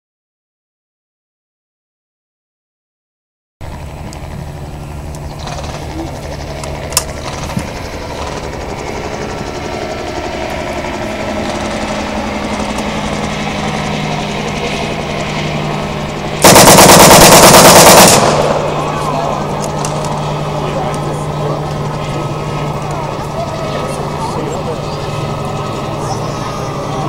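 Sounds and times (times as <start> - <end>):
submachine gun firing full auto: 16.4 - 19.0.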